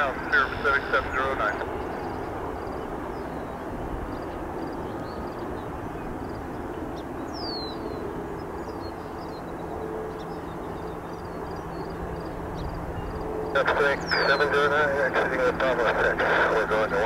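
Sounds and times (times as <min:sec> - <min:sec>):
jet engines rumbling: 0:00.0 - 0:17.0
bird chirps: 0:01.5 - 0:14.6.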